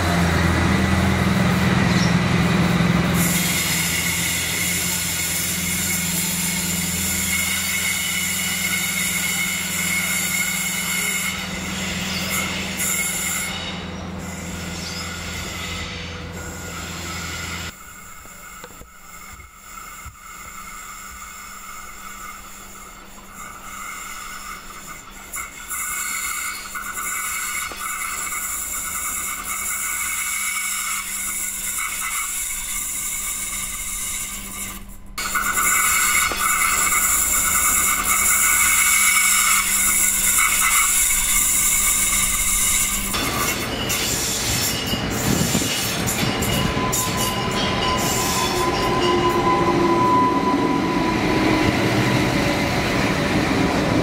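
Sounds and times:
diesel railcar engine hum: 0.0s - 54.0s
railcar approaching: 0.0s - 54.0s
high-pitched whine: 14.2s - 54.0s.

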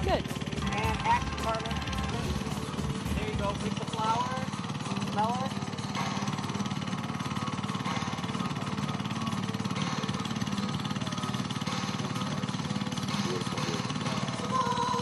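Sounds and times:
small engine running: 0.0s - 15.0s.

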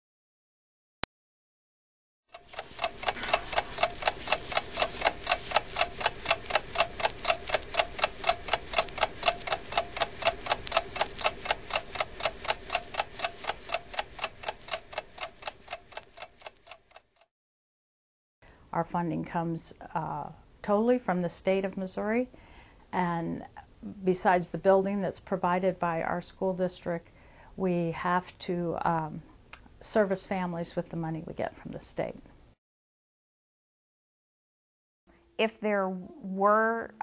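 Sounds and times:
fast even ticking: 2.3s - 17.3s.

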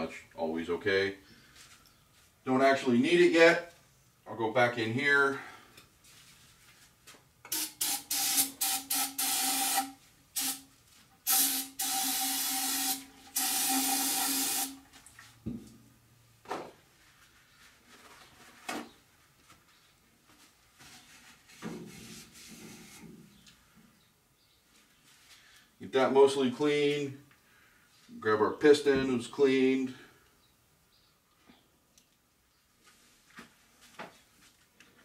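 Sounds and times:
aerosol spray hissing: 7.5s - 10.6s, 11.3s - 14.8s.

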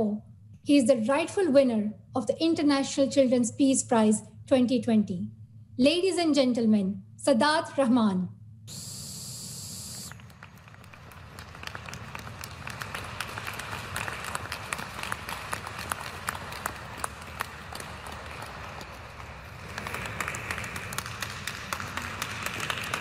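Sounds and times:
small audience clapping: 9.6s - 23.0s.

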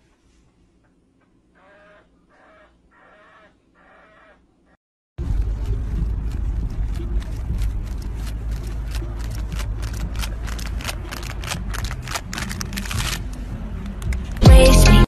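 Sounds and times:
sharp clicks and scrapes: 5.3s - 14.4s.

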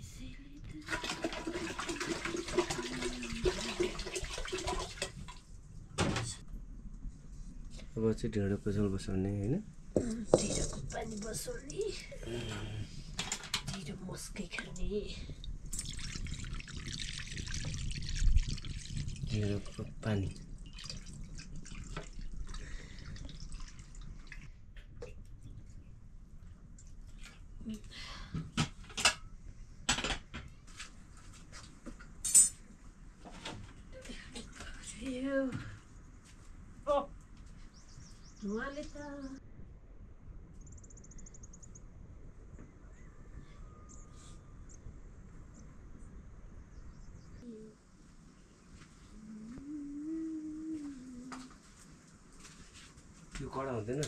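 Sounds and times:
water pouring into a pot: 0.8s - 5.4s, 15.6s - 24.5s
small drips and clicks: 14.5s - 25.8s, 26.7s - 28.0s.

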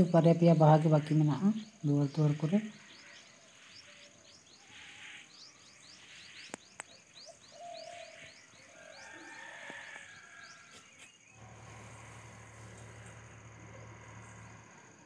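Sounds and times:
small birds chirping: 0.0s - 15.0s
low steady hum: 11.4s - 15.0s.

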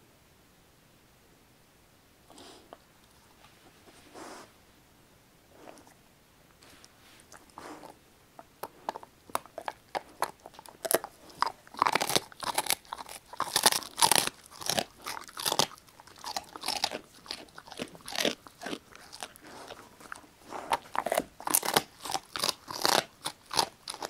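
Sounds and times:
dog chewing bone crunching: 6.6s - 24.0s.

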